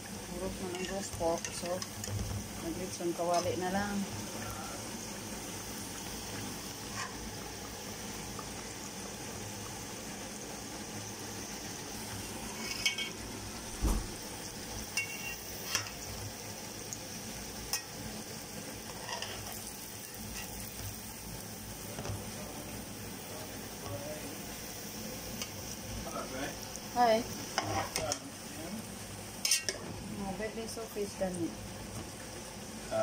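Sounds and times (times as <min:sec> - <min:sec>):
meat sizzling in hot oil: 0:00.0 - 0:33.0
metallic clinks against a pot: 0:15.0 - 0:15.9.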